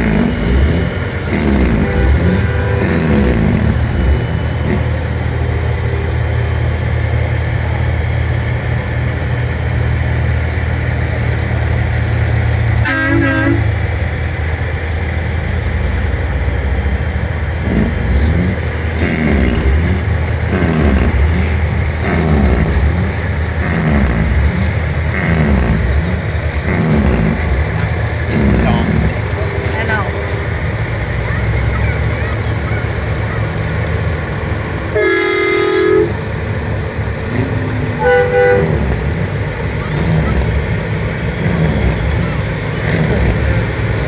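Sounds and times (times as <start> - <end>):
truck horn blast: 0.0 - 4.9, 12.8 - 13.8, 34.9 - 36.2, 37.3 - 39.2
diesel truck engines: 0.0 - 44.0.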